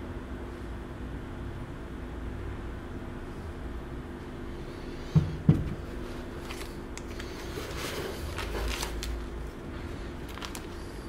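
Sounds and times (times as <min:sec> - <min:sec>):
steady low hum: 0:00.0 - 0:11.0
plastic bags rustling and crinkling: 0:06.1 - 0:11.0.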